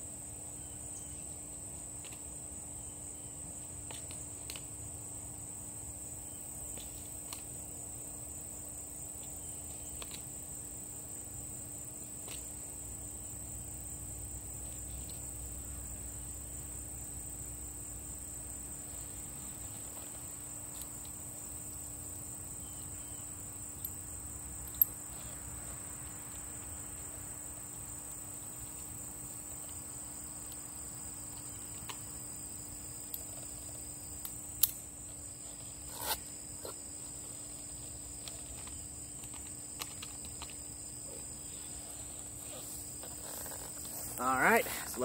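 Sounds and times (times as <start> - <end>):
crickets chirping: 0.0 - 45.0.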